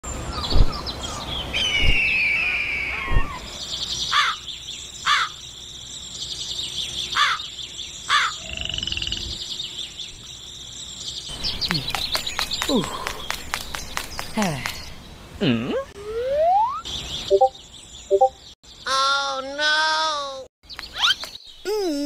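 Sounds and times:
bird long falling cry: 0:01.5 - 0:04.4.

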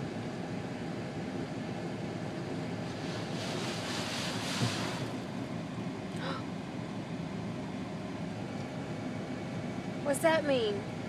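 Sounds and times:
car wash rushing noise: 0:02.7 - 0:05.4
thump: 0:04.5 - 0:05.0.

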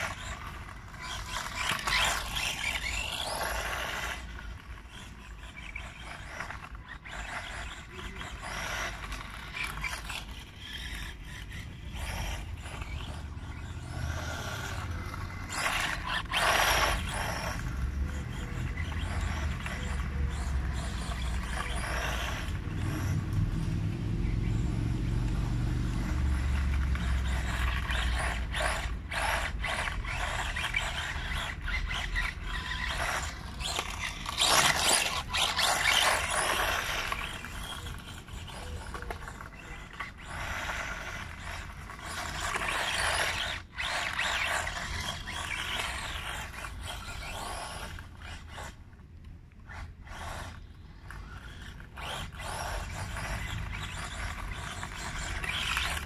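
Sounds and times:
tyres scraping on gravel: 0:00.0 - 0:48.8, 0:49.7 - 0:56.0
rc car motor whine: 0:00.0 - 0:56.0.

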